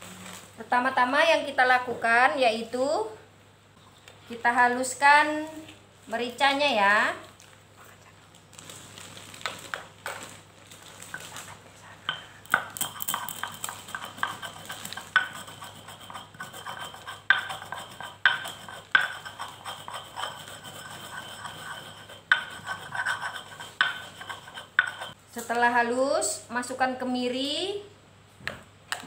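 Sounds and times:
stone pestle grinding on stone: 12.5 - 25.2.

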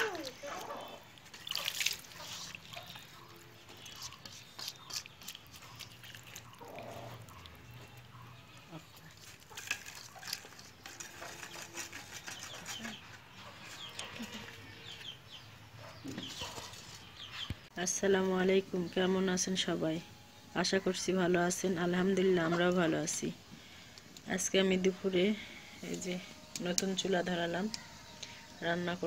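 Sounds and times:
hand squishing fish in paste: 0.2 - 8.0.

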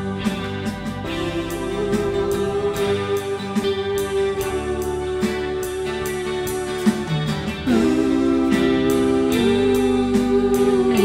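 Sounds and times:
band playing instrumental: 0.0 - 11.0
drum beat with cymbals: 0.0 - 11.0
held lead note: 0.0 - 11.0.

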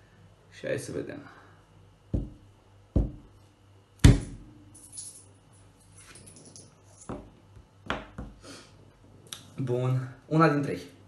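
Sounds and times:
coins clinking: 4.7 - 7.1.

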